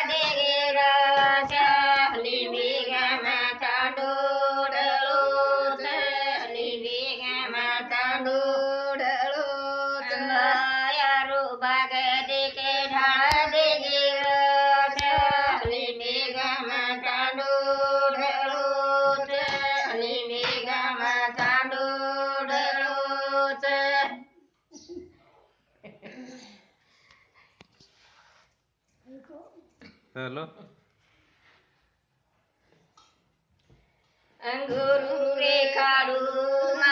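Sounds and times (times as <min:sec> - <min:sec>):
women singing together: 0:00.0 - 0:24.5, 0:34.4 - 0:36.9.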